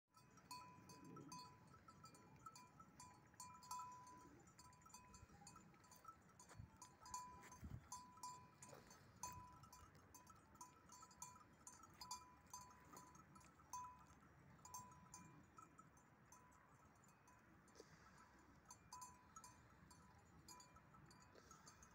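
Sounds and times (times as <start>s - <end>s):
sheep bells clinking: 0.1s - 21.9s.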